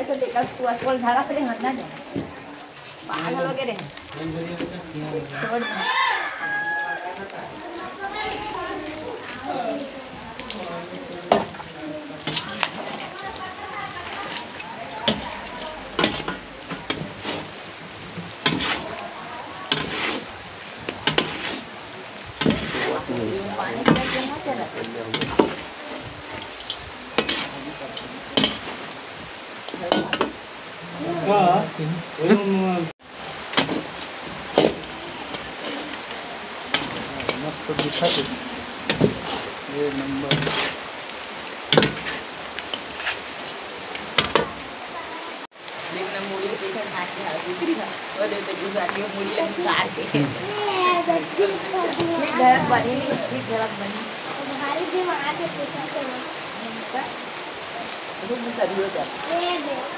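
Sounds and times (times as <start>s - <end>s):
meat sizzling in oil: 0.0s - 59.9s
metal ladle scraping pan: 12.2s - 13.2s, 13.9s - 19.0s, 19.6s - 28.9s, 33.5s - 40.8s, 41.7s - 43.3s.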